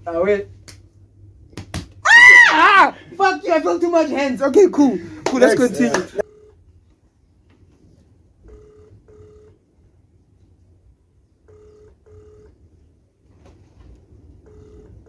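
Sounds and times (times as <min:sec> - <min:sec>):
phone ringback tone: 0:06.2 - 0:06.6, 0:08.5 - 0:09.6, 0:11.5 - 0:12.6, 0:14.4 - 0:15.0.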